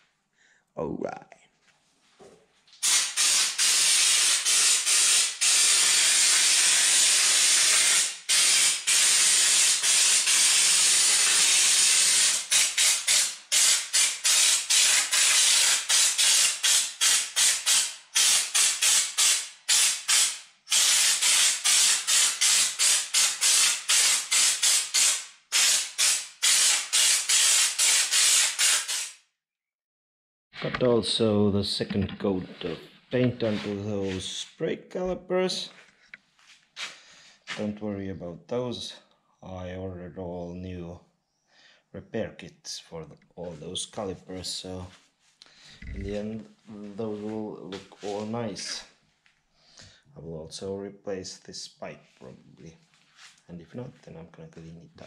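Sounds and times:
spray gun hissing: 2.8 - 29.2.

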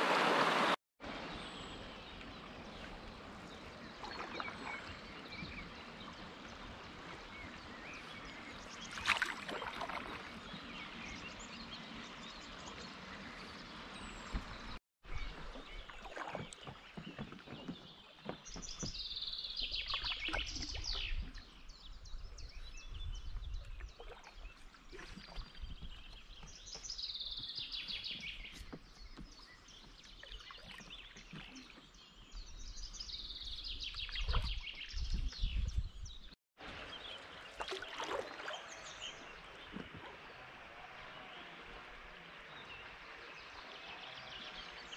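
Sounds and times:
kayak paddle water sounds: 0.0 - 44.9.

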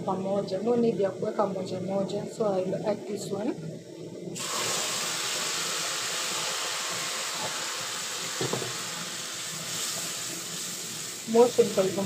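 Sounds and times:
tomato sizzling in hot oil: 4.4 - 12.0
brief knock: 8.4 - 8.8.

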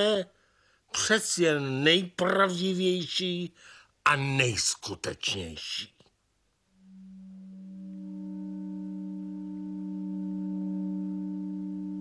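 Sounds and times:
drone of steady pure tones: 6.7 - 12.0.

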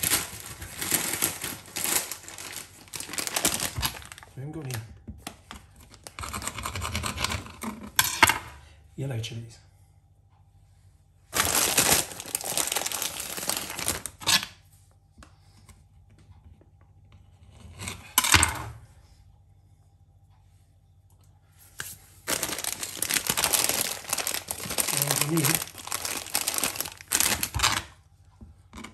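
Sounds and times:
plastic packet crinkling: 0.0 - 6.4, 11.3 - 14.3, 22.2 - 27.9.

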